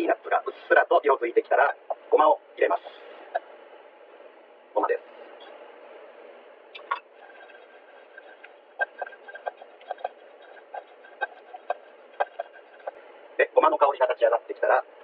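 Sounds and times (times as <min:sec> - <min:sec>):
spatula stirring: 0:07.0 - 0:13.0.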